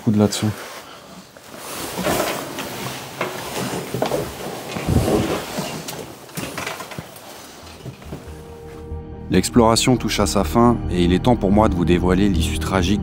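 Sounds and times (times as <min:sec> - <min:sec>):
wooden objects knocking and scraping: 0:01.8 - 0:08.5.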